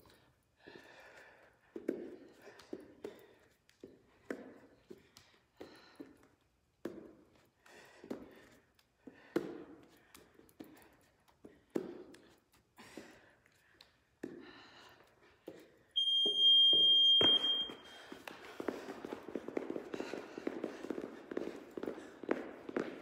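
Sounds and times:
footfalls of jogging in place: 0.0s - 23.0s
electronic timer beep: 16.0s - 17.8s
heavy breathing: 17.7s - 23.0s.

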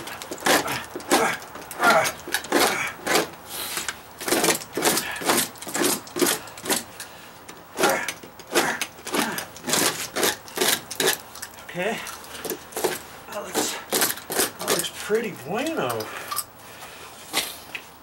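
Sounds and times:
knife scraping plywood: 0.0s - 6.9s, 12.4s - 15.1s.

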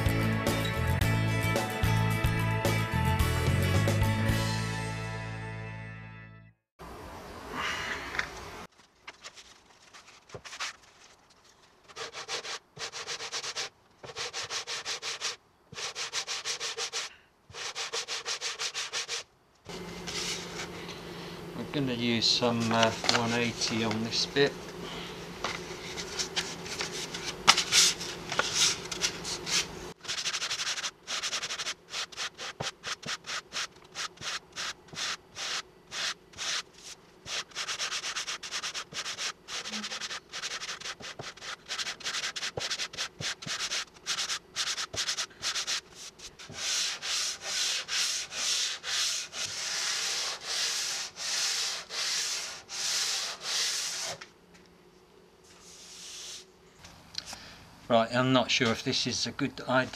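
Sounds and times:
hand sanding strokes: 11.9s - 21.0s, 21.8s - 54.3s, 55.4s - 56.5s.

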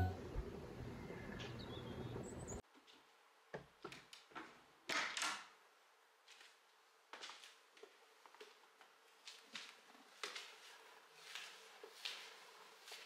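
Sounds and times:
soft background music: 0.0s - 0.3s.

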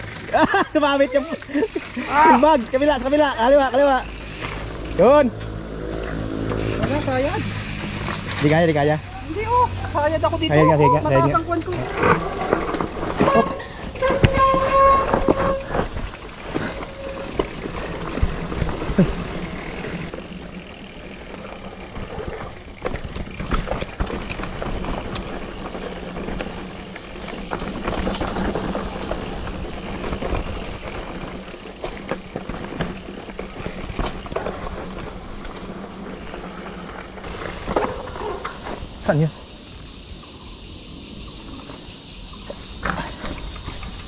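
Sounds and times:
bike tyres rolling on dirt: 0.0s - 44.0s
bike clattering over bumps: 1.3s - 9.1s, 11.2s - 39.1s.

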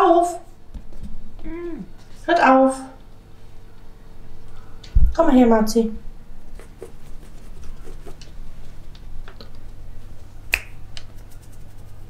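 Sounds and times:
fingers snapping: 10.5s - 11.6s.

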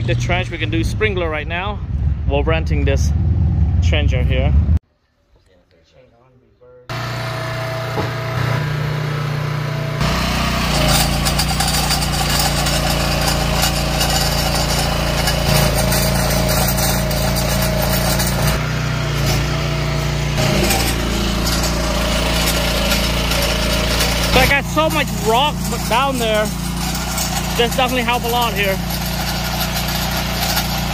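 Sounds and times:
small gas engine under load: 6.9s - 30.9s
digging chain grinding and rattling: 10.0s - 30.9s.

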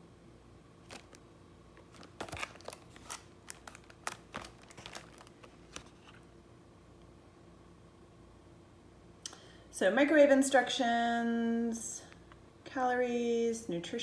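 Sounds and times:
paperboard sleeve rustling: 1.8s - 6.3s.

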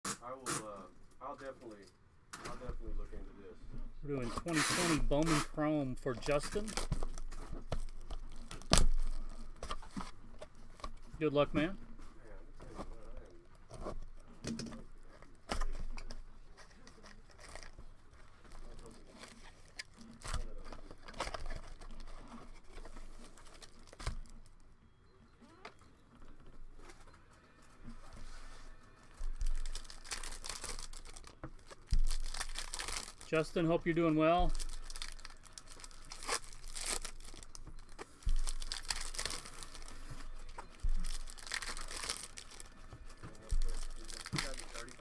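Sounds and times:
foil packs crinkling: 4.4s - 11.8s, 17.0s - 24.6s, 28.8s - 45.0s.

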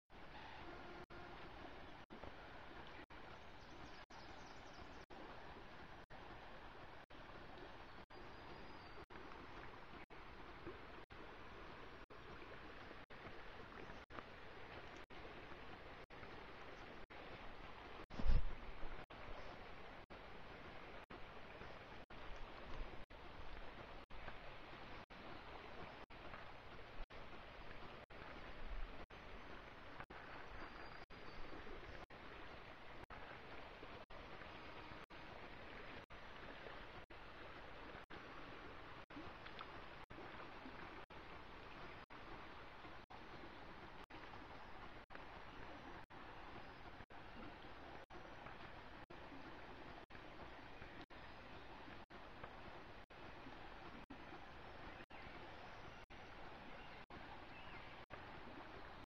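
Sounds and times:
river water rushing over riffle: 4.9s - 59.0s.

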